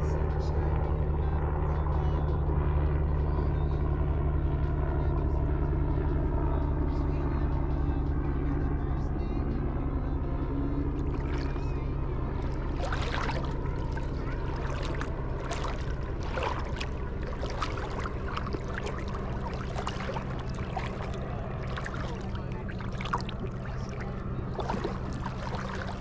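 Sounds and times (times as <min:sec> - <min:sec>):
steady low hum: 0:00.0 - 0:26.0
seawater lapping and splashing: 0:10.5 - 0:26.0.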